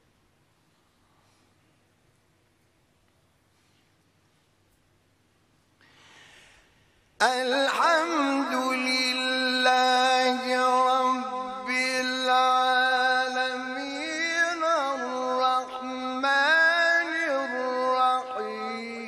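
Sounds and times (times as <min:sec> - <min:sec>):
man chanting melodically: 0:07.2 - 0:19.0.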